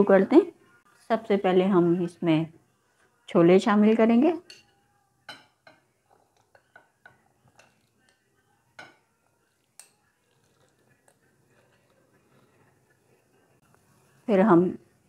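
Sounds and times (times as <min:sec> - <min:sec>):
metal spoon clinking on glass bowl: 0:04.4 - 0:10.8.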